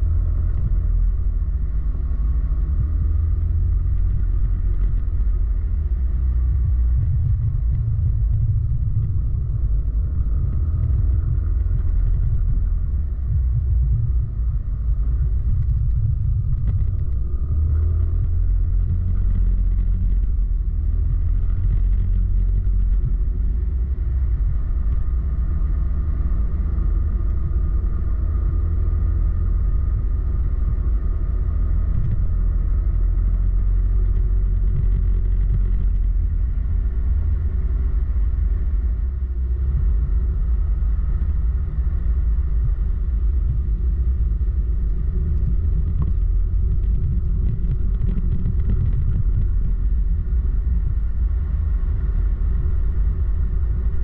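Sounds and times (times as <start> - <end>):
wind rumble on microphone: 0.0 - 54.0.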